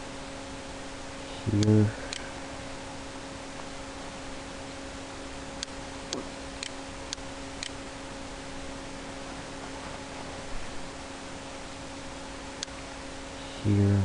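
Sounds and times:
microphone hiss and hum: 0.0 - 14.0.

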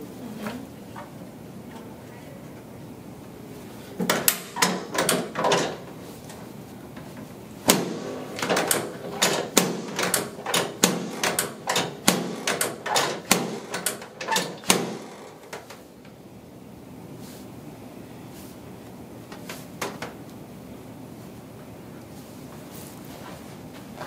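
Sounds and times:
sharp knocks: 7.7 - 15.1.

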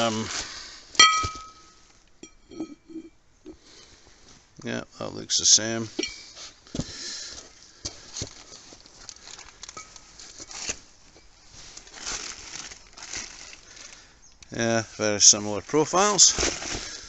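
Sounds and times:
plastic bag crinkling: 8.3 - 10.8, 11.6 - 14.0.

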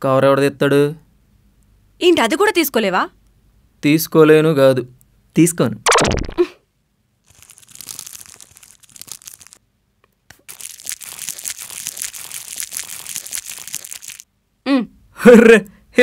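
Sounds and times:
wrapper crinkling: 7.2 - 9.6, 10.3 - 14.3.

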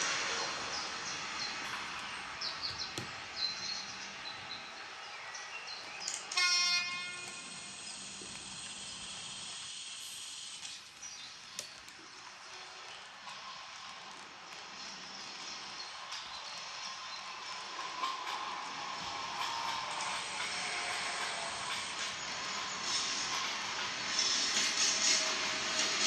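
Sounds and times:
model train rolling: 0.0 - 26.0
model train horn toot: 6.2 - 7.9.

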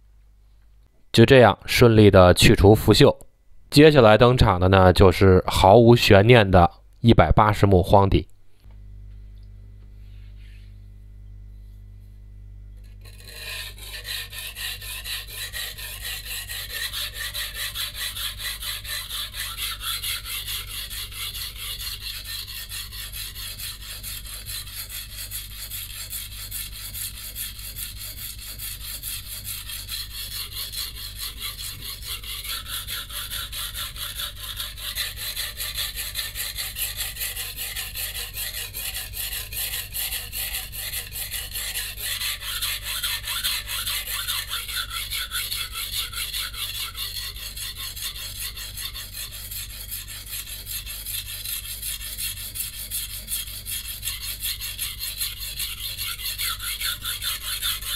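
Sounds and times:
knife scraping on waterstone: 12.8 - 57.9.

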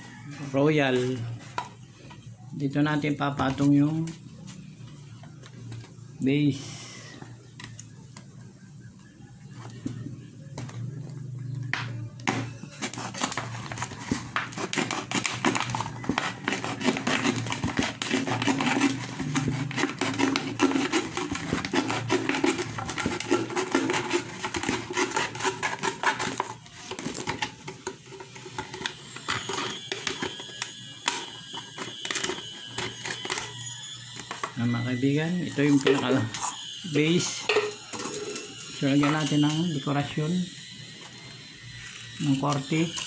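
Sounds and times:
plastic bottle crackling: 12.2 - 33.6.

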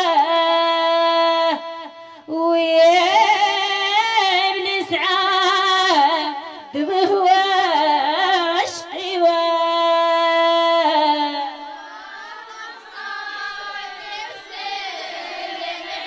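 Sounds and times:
woman singing unaccompanied: 0.0 - 11.8.

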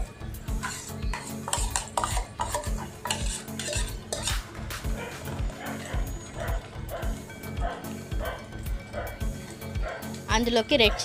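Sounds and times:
paste sizzling in oil: 0.5 - 5.4
spoon scraping a metal pot: 0.5 - 6.4.

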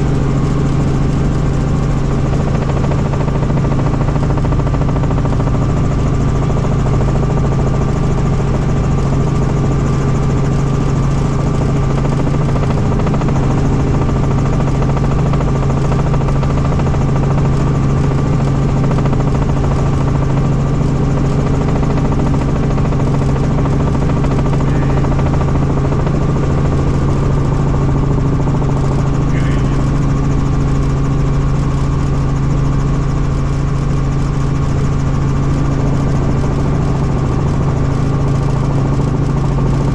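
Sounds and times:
helicopter drone: 0.0 - 39.9.

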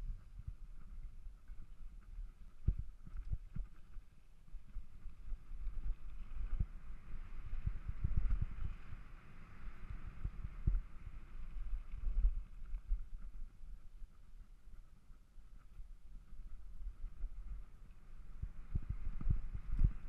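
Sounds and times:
wind buffeting microphone: 4.6 - 14.8, 15.6 - 20.0.

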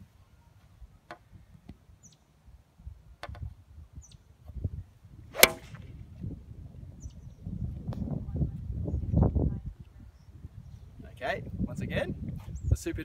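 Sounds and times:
golf club striking ball: 5.3 - 5.9.

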